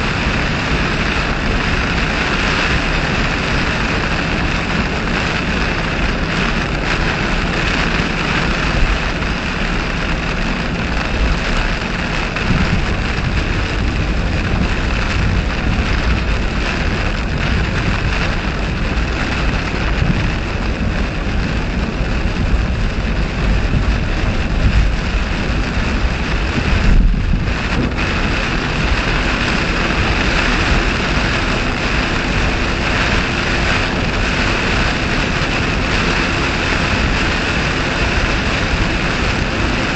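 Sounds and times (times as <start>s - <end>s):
heavy rain on a car: 0.0s - 39.9s
road and wind noise: 0.0s - 39.9s.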